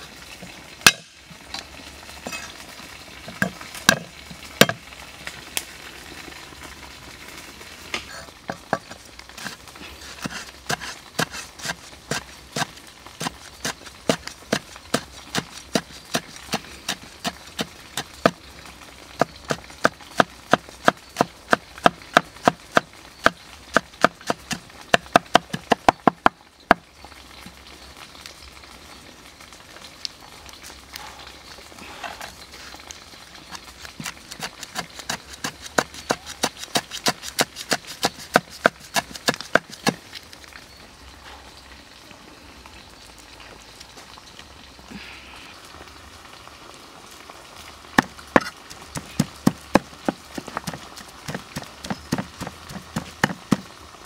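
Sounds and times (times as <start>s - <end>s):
cleaver chopping on wooden block: 0.9s - 1.1s, 50.6s - 53.6s.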